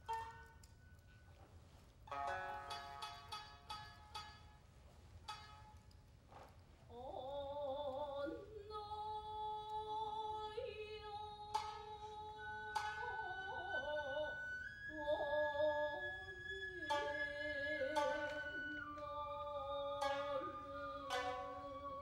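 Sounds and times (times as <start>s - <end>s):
plucked shamisen strokes: 0.0s - 1.4s, 2.0s - 6.5s, 11.4s - 22.0s
person singing long notes: 7.2s - 22.0s.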